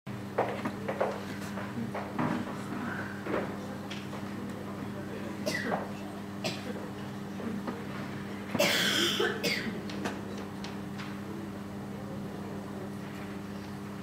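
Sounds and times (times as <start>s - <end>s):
steady low hum: 0.1s - 14.0s
person coughing: 5.4s - 5.8s, 6.4s - 6.8s, 8.6s - 9.8s.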